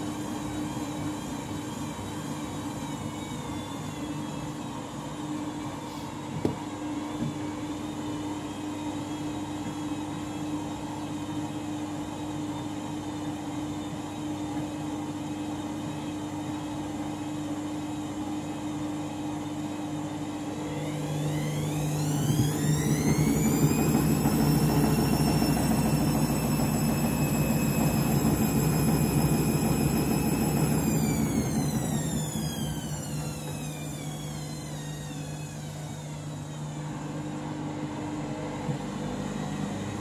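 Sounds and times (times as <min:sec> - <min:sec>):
spinning drum whine and rumble: 0:00.0 - 0:40.0
washing machine motor humming: 0:00.0 - 0:40.0
washing machine knock: 0:22.2 - 0:29.5.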